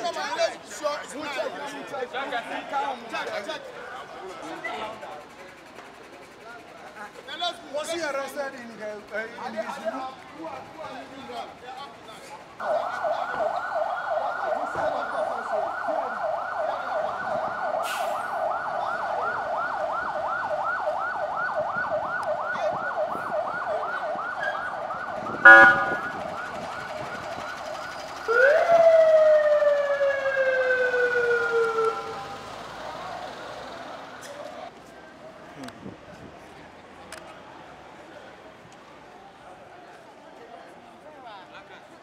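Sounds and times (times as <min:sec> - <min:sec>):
police siren yelp and wail: 0:12.6 - 0:34.2
loud vehicle horn blast: 0:25.4 - 0:26.2.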